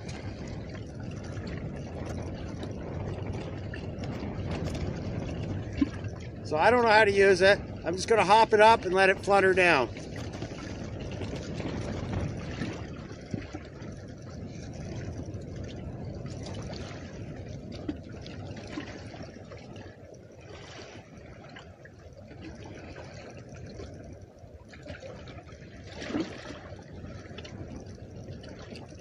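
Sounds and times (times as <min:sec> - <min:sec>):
waves lapping against boat hull: 0:00.0 - 0:29.0
wind rumbling on microphone: 0:00.0 - 0:29.0.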